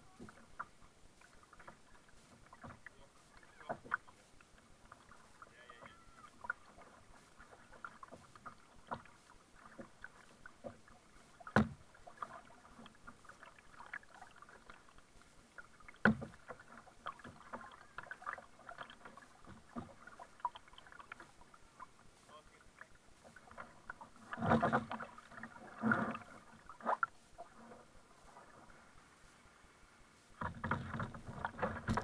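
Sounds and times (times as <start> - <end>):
paddle splashing in water: 0.0 - 29.3, 30.3 - 32.0
paddle knocks: 5.4 - 13.0, 15.9 - 21.2, 30.4 - 32.0.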